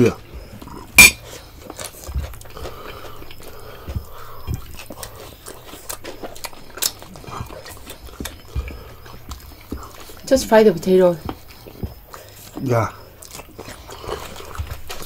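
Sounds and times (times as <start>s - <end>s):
people chewing: 0.0s - 15.0s.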